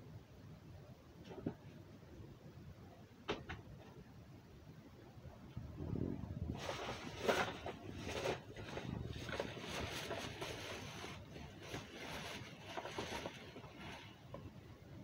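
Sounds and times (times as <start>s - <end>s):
plastic bag rustling: 6.4s - 14.4s.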